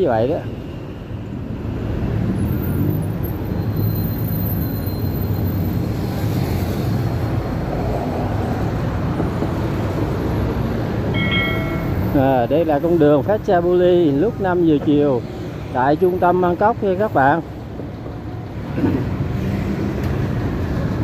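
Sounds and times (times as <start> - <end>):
traffic passing on wet road: 5.4 - 21.0.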